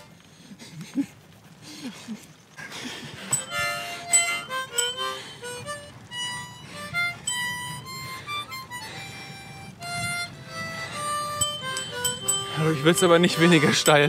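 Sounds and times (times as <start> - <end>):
harmonica playing a quick tune: 3.3 - 14.0.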